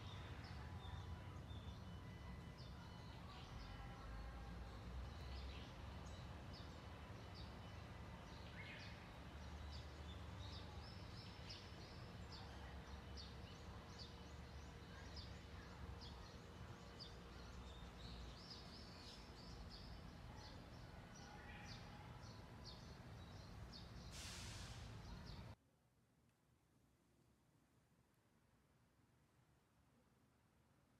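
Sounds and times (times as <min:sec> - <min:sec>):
small birds chirping: 0:00.0 - 0:25.6
brief hiss: 0:24.0 - 0:25.2.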